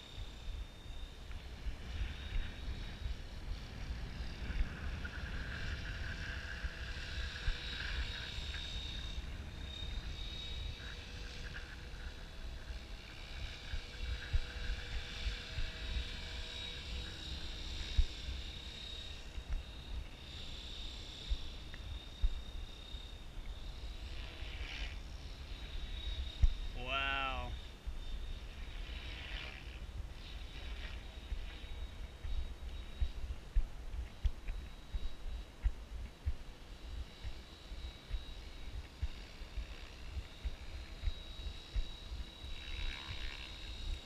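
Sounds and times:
wind buffeting microphone: 0.0 - 24.1, 25.0 - 26.8
rc helicopter whine: 0.0 - 44.0.

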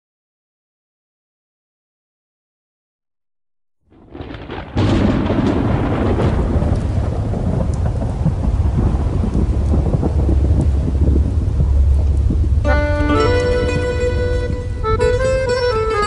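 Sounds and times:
rain: 3.9 - 16.0
thunder rumble: 3.9 - 16.0.

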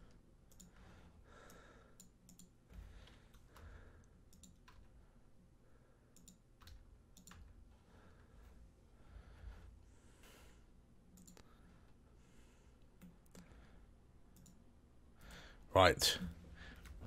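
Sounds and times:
computer mouse clicks: 0.0 - 5.0, 6.1 - 7.7, 11.1 - 11.8, 12.8 - 13.6, 14.3 - 14.6
low room hum: 0.0 - 17.0.

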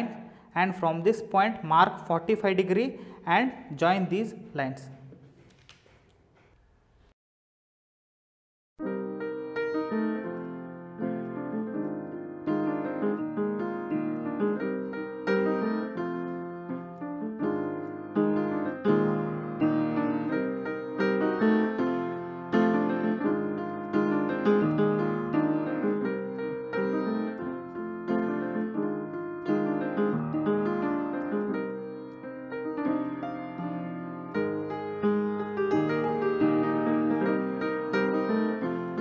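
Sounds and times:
slow piano melody: 8.8 - 39.0.

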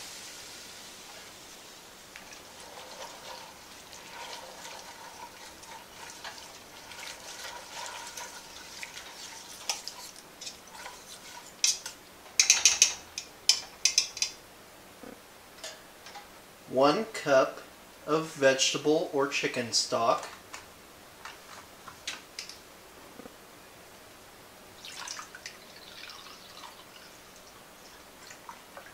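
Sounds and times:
whisk swishing in a pot: 2.3 - 11.9
whisk clinking against metal pot: 4.1 - 14.3.

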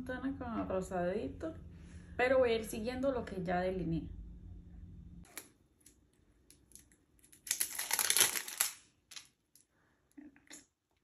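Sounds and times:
crinkling: 5.3 - 9.7.

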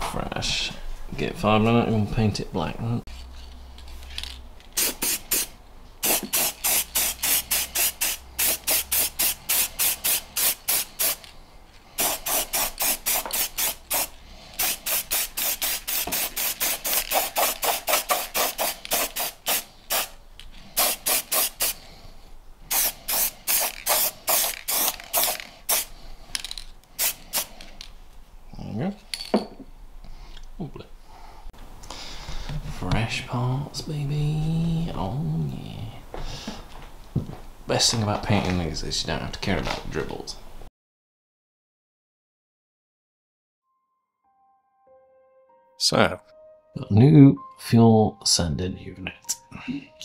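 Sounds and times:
spray paint can hissing bursts: 4.7 - 11.3, 12.0 - 20.2, 20.8 - 21.8, 22.7 - 25.9, 27.0 - 27.5.

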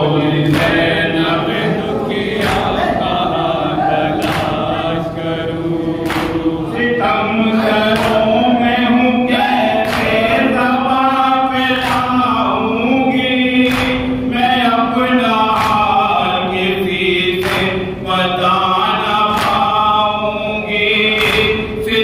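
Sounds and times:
men chanting through a microphone: 0.0 - 22.0
chest slaps in unison: 0.4 - 1.1, 2.2 - 3.2, 4.2 - 4.9, 6.0 - 6.6, 7.9 - 8.3, 9.8 - 10.4, 11.8 - 12.2, 13.6 - 14.2, 15.5 - 16.0, 17.4 - 17.9, 19.3 - 19.7, 21.2 - 21.8.

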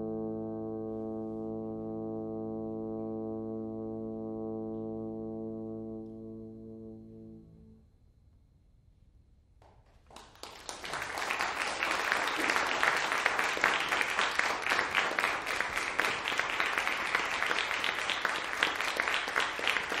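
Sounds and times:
audience applauding: 9.9 - 20.0.

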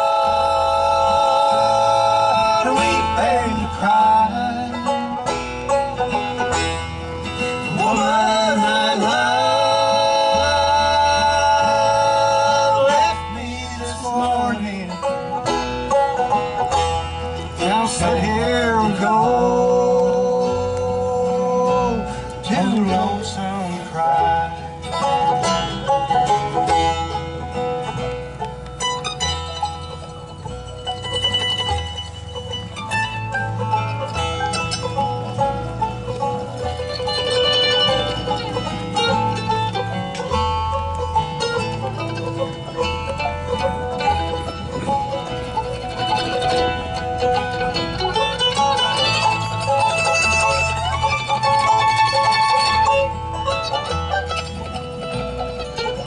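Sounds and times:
man singing: 0.0 - 5.3, 7.6 - 15.4, 17.6 - 25.0
banjo: 0.0 - 56.0
bass holding low notes: 0.0 - 56.0
bluegrass band playing: 0.0 - 56.0
guitar: 0.0 - 56.0
mandolin picking: 0.0 - 56.0.

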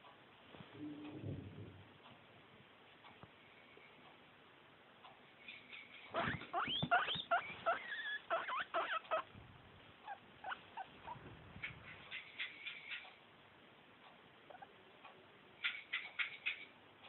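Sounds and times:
guinea pig squealing: 5.8 - 9.3, 10.0 - 13.0, 14.5 - 14.7.

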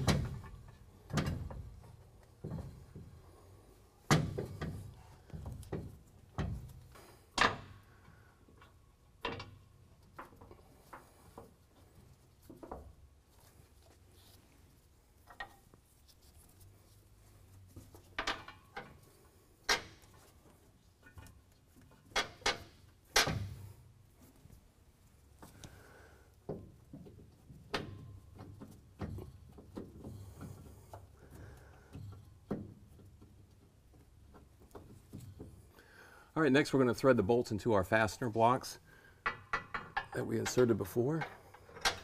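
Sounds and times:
metal knocks and clanks: 4.1 - 7.8.

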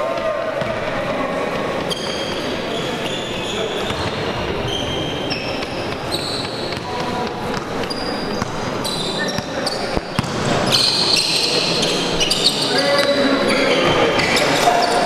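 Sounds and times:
sports hall din: 0.0 - 15.0
shoes squeaking on court floor: 1.5 - 15.0
ball bouncing: 9.4 - 10.5.

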